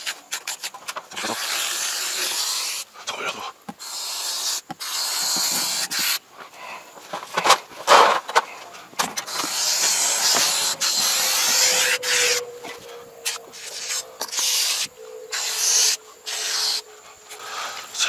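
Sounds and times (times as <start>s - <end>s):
foam hissing from spray can: 0.0s - 3.0s, 3.8s - 6.2s, 9.1s - 12.4s, 13.2s - 16.8s.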